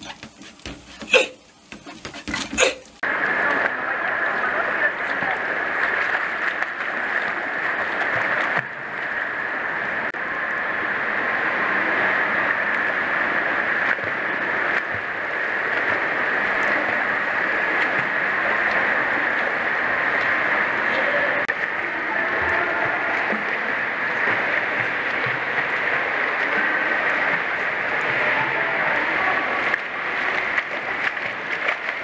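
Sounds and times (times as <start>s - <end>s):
pool water splashing: 0.0s - 32.0s.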